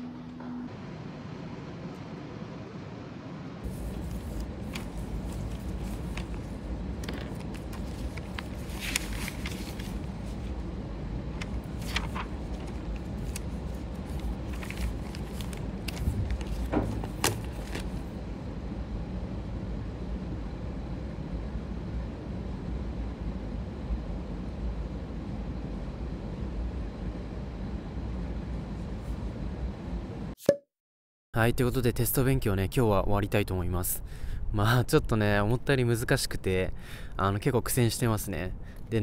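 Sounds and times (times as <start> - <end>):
low background hum: 0.0 - 30.4, 31.4 - 39.0
paper sheets rustling: 3.7 - 10.5, 11.4 - 18.2.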